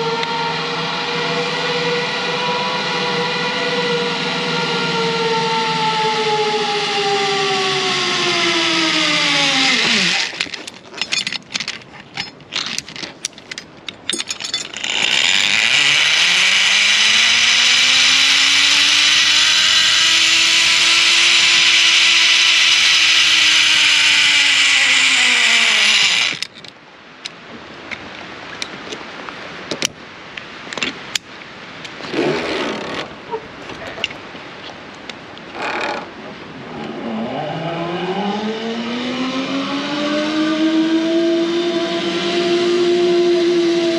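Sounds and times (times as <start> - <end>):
falling whine: 0.0 - 26.6, 35.5 - 43.9
zipline pulley rolling on cable: 0.0 - 26.6, 31.9 - 34.2, 35.4 - 36.2, 36.8 - 43.9
carabiners clicking: 9.2 - 26.8, 35.4 - 36.1
hooks clicking and knocking: 9.8 - 15.7.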